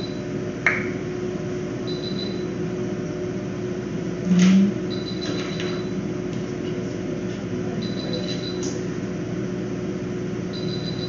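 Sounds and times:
equipment humming: 0:00.0 - 0:11.0
low buzz: 0:04.0 - 0:05.1.

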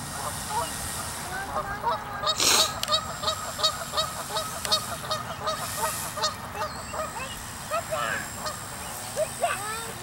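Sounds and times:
geese honking: 0:00.1 - 0:09.8
hiss-like burst: 0:00.3 - 0:01.4, 0:02.3 - 0:06.3.

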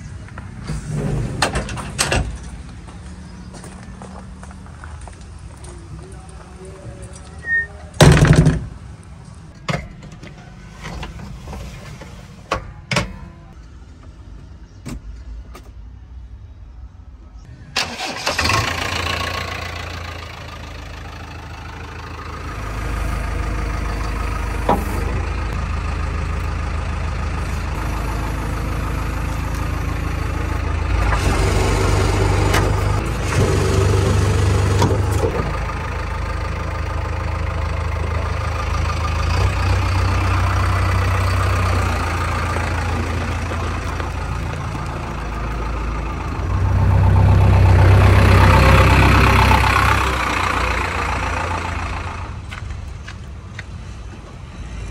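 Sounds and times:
diesel engine idling: 0:17.8 - 0:54.8.

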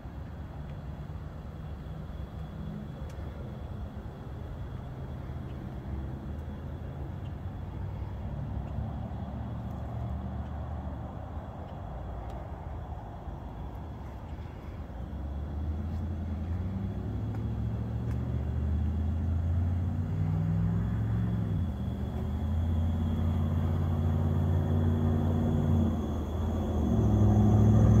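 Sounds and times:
pickup engine idling: 0:21.4 - 0:28.0.

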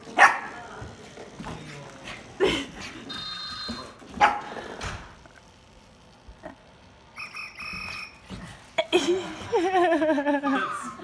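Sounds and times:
toy high electronic tone: 0:03.1 - 0:03.9, 0:07.1 - 0:08.3, 0:10.4 - 0:11.0.

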